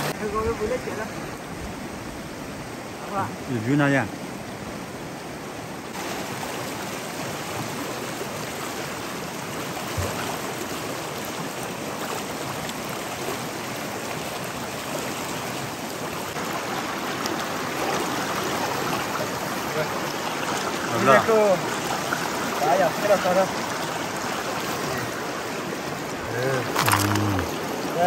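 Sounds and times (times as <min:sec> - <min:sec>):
stream rushing over rocks: 0:00.0 - 0:28.0
water splashing: 0:05.9 - 0:13.3, 0:14.2 - 0:28.0.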